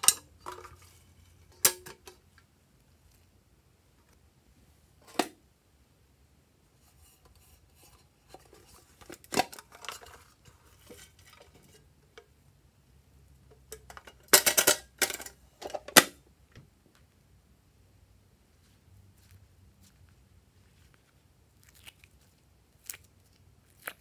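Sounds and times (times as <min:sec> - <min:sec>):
slime squelching and crackling: 0:19.2 - 0:24.0.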